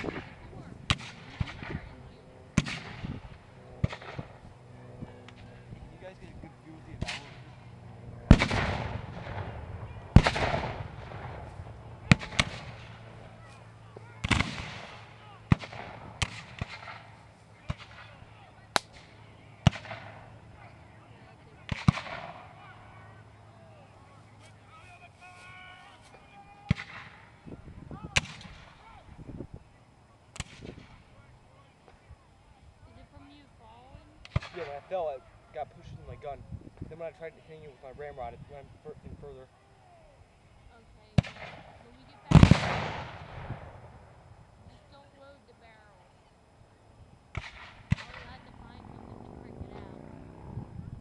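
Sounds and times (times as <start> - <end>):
sharp gunshot cracks: 0.0 - 1.8, 2.6 - 3.2, 3.8 - 4.4, 7.0 - 7.5, 8.3 - 11.5, 12.1 - 13.0, 14.2 - 17.1, 18.8 - 20.2, 21.7 - 22.5, 26.7 - 27.2, 28.1 - 28.8, 30.3 - 31.0, 34.2 - 34.8, 41.2 - 43.9, 47.3 - 48.3
rifle shots with echo: 0.0 - 4.4, 7.0 - 7.5, 8.2 - 13.2, 14.2 - 18.2, 18.8 - 20.4, 21.6 - 22.5, 28.2 - 28.9, 34.3 - 34.9, 41.2 - 44.2, 47.3 - 49.1
gunshots with rolling echo: 8.3 - 13.2, 14.2 - 17.1, 41.2 - 44.2.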